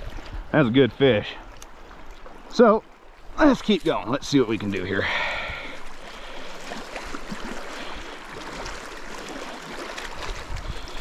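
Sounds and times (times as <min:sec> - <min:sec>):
flowing water rushing: 0:00.0 - 0:11.0.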